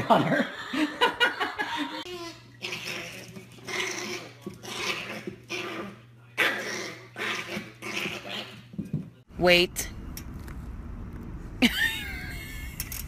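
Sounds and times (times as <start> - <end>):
small dog growling and yapping: 2.1 - 8.7.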